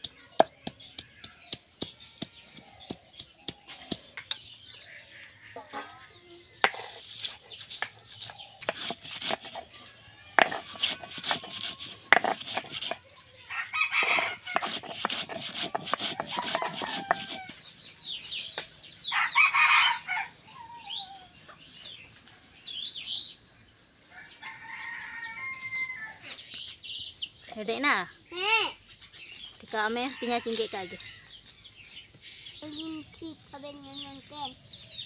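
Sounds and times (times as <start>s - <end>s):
chickens calling: 0.0s - 23.2s
small birds calling: 0.0s - 35.0s
grinding stone scraping on slab: 6.6s - 13.0s, 13.9s - 17.6s
rooster crowing: 16.3s - 17.6s, 19.1s - 21.1s, 24.1s - 26.2s.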